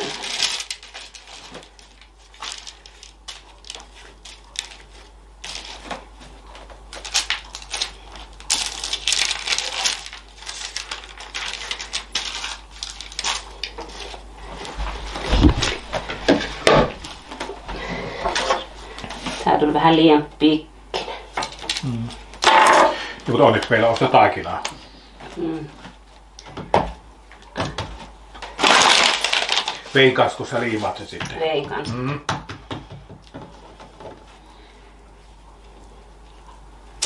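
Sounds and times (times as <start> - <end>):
baking paper crackling: 0.0 - 20.0, 23.3 - 25.8, 28.0 - 31.6.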